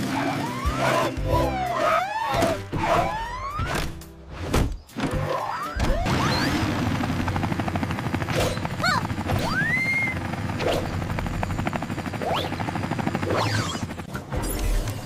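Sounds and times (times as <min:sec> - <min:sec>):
helicopter rotors chopping: 0:05.8 - 0:15.0.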